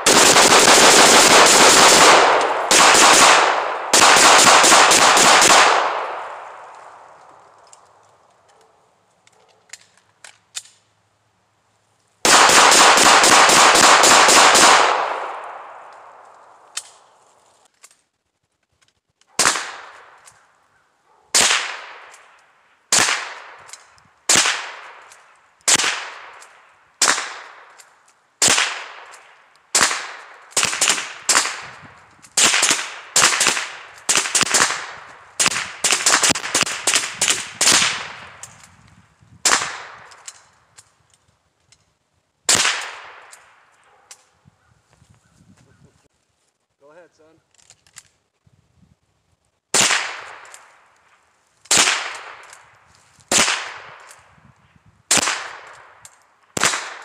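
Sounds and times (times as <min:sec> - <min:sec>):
gunshots with echo: 0:00.0 - 0:06.7.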